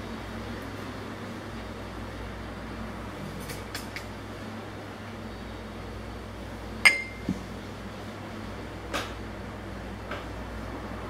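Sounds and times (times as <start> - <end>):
steady hum: 0.0 - 11.0
tableware clinking: 6.9 - 7.3.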